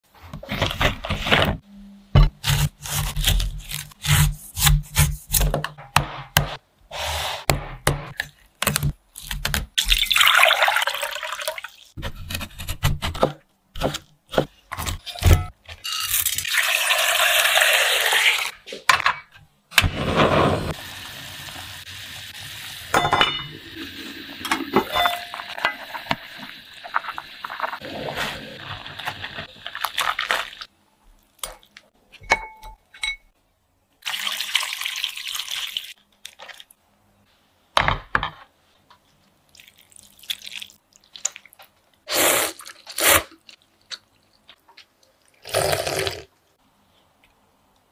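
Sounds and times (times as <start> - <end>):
liquid pouring: 9.9 - 11.9
pots and dishes clinking: 22.9 - 23.7, 24.4 - 26.1.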